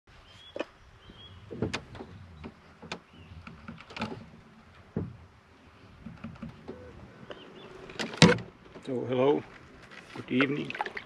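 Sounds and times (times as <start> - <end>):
paddle knocking canoe hull: 1.4 - 5.3.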